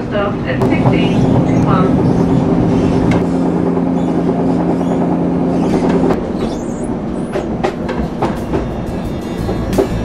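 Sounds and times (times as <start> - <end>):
train interior hum: 0.0 - 10.0
train wheel squeal: 4.0 - 9.8.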